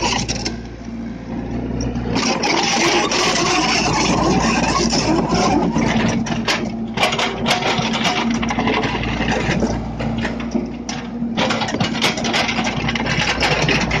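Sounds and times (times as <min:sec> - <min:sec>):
diesel engine humming: 0:00.0 - 0:14.0
clanks and knocks: 0:02.5 - 0:14.0.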